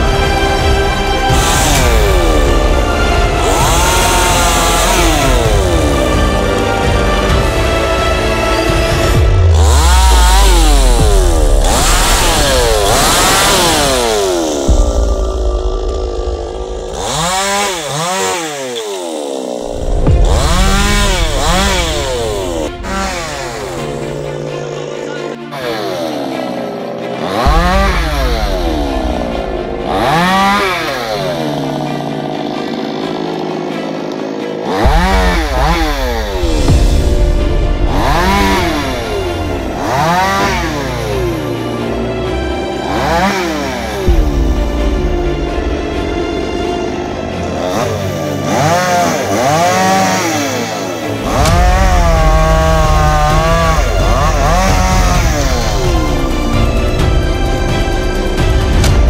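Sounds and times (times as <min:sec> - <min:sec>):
chainsaw revving: 0:00.0 - 0:59.0.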